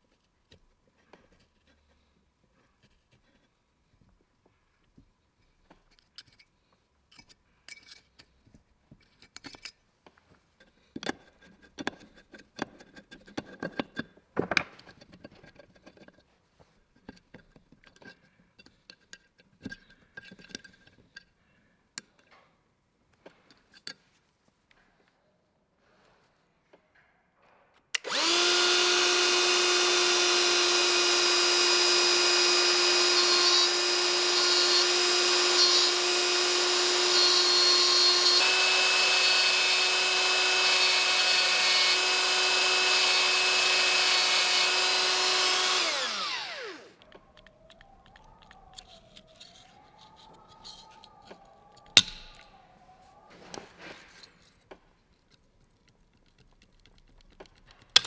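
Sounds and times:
rotary tool grinding metal: 0:28.0 - 0:52.5.

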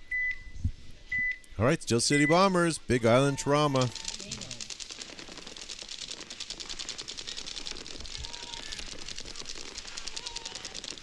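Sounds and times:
paintball guns firing rapidly: 0:03.7 - 0:11.0.

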